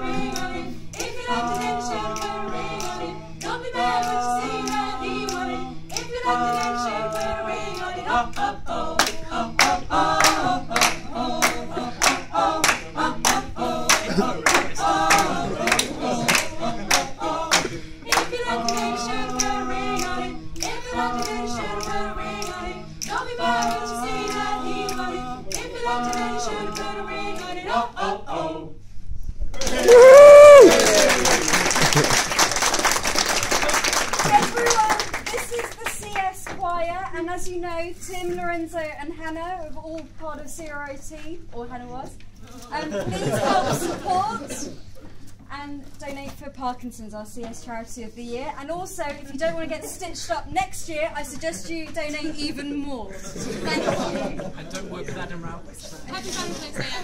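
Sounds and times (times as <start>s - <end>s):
rhythmic clapping: 0.0s - 28.1s, 29.6s - 36.7s
group singing a cappella: 0.0s - 28.9s, 42.5s - 44.8s, 53.2s - 55.2s.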